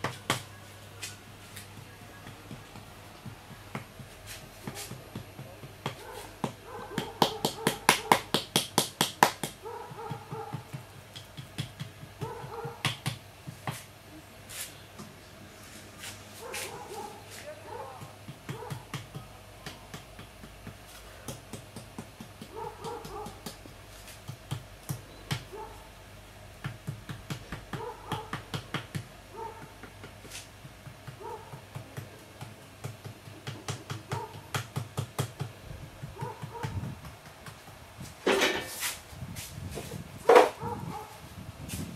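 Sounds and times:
wooden paddle tapping clay: 0:00.0 - 0:13.9, 0:17.4 - 0:25.6, 0:26.6 - 0:37.8.

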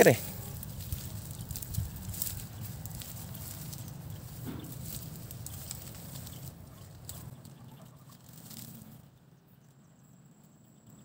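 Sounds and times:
faint clicks and rustles: 0:00.0 - 0:09.1
wind buffeting microphone: 0:00.1 - 0:07.3.

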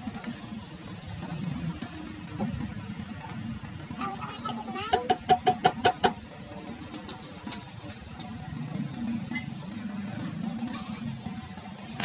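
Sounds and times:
faint clicks and scrapes: 0:04.4 - 0:12.0.

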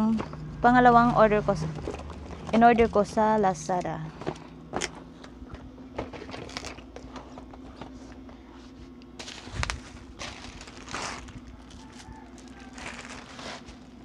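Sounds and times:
parcel rustling and sliding: 0:08.5 - 0:14.0.

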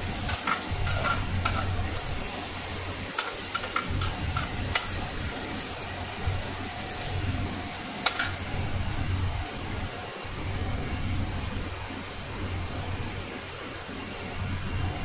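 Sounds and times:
onions sizzling in oil: 0:00.0 - 0:15.0
metal spoon clinking on pan: 0:08.0 - 0:08.4.

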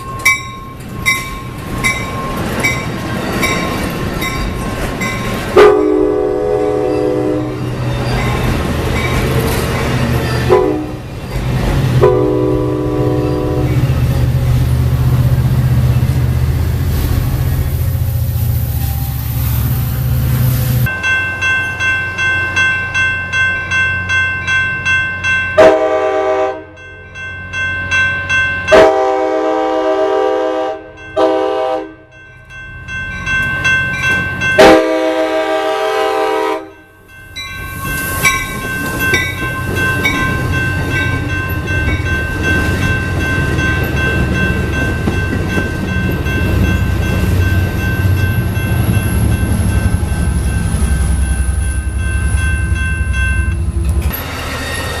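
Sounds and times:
crossing bell ringing: 0:00.0 - 0:16.4, 0:18.7 - 0:54.7
train wheels rumbling on rail: 0:00.0 - 0:23.0, 0:32.9 - 0:55.0
train horn blowing: 0:05.6 - 0:07.7, 0:10.5 - 0:11.0, 0:12.0 - 0:13.8, 0:25.6 - 0:26.8, 0:28.7 - 0:32.1, 0:34.6 - 0:36.8.

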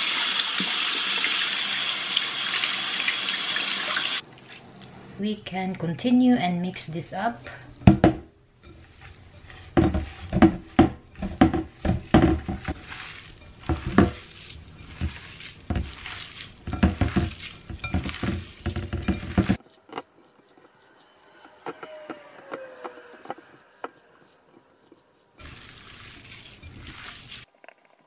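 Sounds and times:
hands kneading meat mixture: 0:08.8 - 0:27.5
glass bowl knocking on steel sink: 0:16.6 - 0:19.6.

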